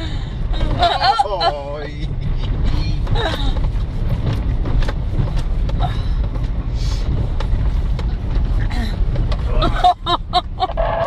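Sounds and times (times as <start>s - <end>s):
vehicle rumbling on dirt track: 0.0s - 11.0s
knocks and rattles: 2.1s - 10.6s.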